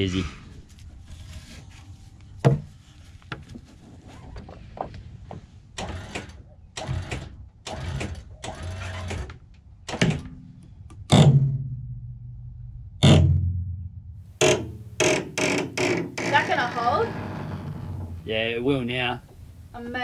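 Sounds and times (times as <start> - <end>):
heavy knocks with ringing: 14.4 - 16.2.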